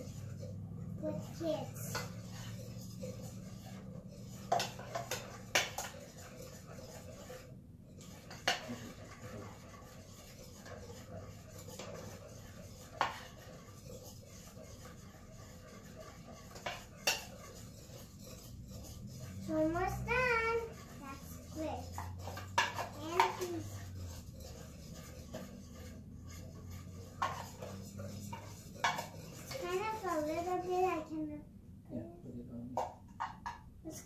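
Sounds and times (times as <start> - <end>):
batter stirred in metal bowl: 0.0 - 31.3, 32.8 - 34.0
utensils clinking against bowl: 4.1 - 7.0, 21.8 - 25.9.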